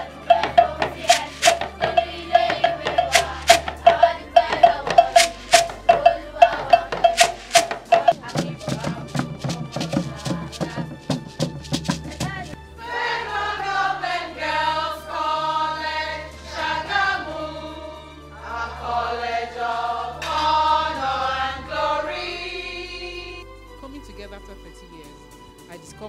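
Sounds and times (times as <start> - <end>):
women singing in chorus: 0.0 - 11.0, 12.2 - 23.4
drum and rattle percussion: 0.0 - 12.6.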